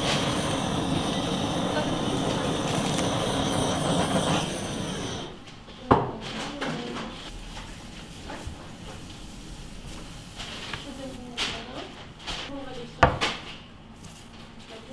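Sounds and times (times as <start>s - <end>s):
blowtorch hissing: 0.0s - 5.4s.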